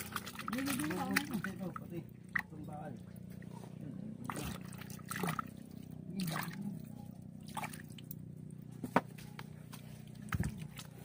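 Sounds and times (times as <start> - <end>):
river water splashing: 0.0 - 8.2.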